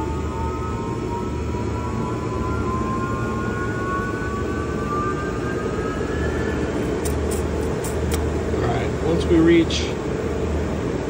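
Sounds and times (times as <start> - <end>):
electric motor whine rising: 0.0 - 8.6
steady low motor hum: 0.0 - 11.0.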